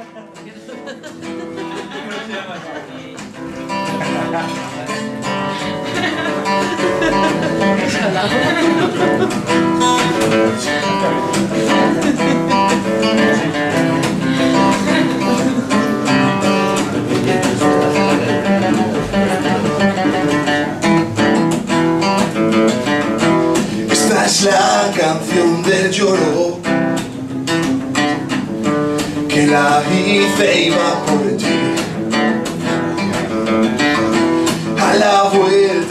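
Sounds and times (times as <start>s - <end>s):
acoustic guitar strumming chords: 0.0s - 35.9s.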